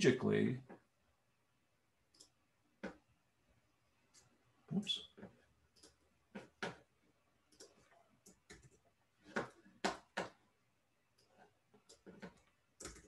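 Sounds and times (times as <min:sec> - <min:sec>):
computer mouse clicking: 0:02.1 - 0:03.0, 0:05.7 - 0:06.9, 0:07.5 - 0:10.4, 0:11.2 - 0:13.0.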